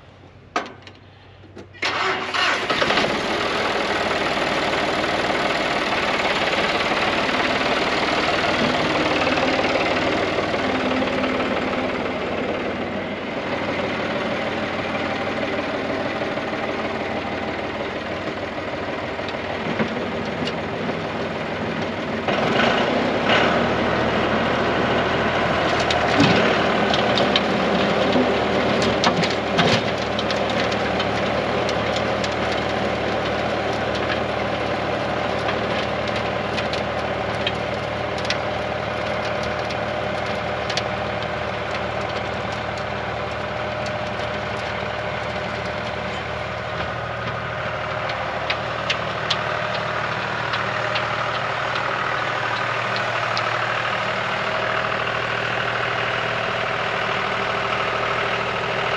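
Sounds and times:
tractor diesel engine running: 0.0s - 58.9s
sharp clicks and knocks: 0.5s - 1.8s, 35.3s - 53.7s.

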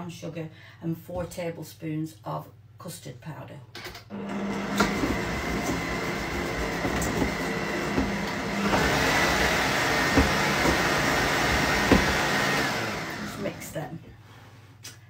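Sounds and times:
electric stand mixer running: 4.1s - 13.7s.

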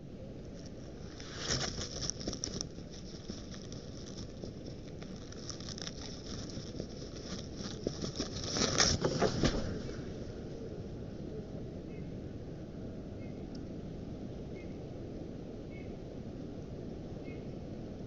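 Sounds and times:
rustling dry nest material: 0.6s - 10.4s.

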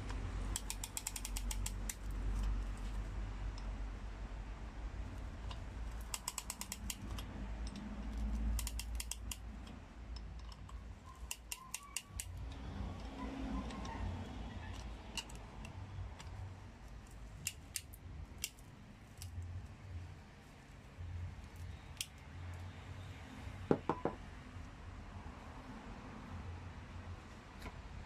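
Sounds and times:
sharp metallic clicks and clinks: 0.5s - 2.5s, 5.4s - 13.1s.

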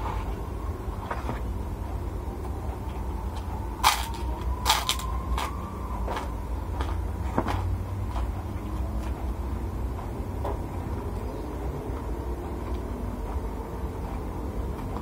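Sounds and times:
steady low hum: 0.0s - 15.0s
cracker crunching while chewed: 3.4s - 7.6s.

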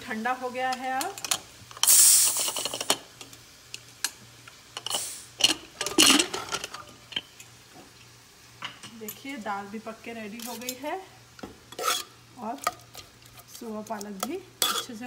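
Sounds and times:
steam hissing rush: 1.8s - 2.8s, 4.9s - 5.4s
metal lid clicking and scraping: 11.7s - 15.0s.

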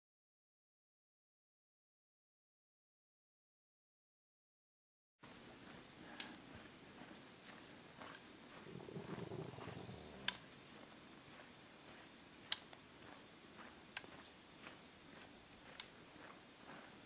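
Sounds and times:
footsteps crunching on snow: 5.4s - 17.0s
low rumble: 8.6s - 10.4s.

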